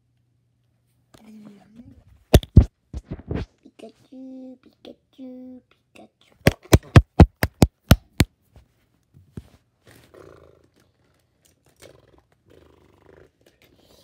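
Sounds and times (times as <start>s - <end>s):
taps on phone microphone: 2.4s - 3.5s, 6.4s - 8.3s.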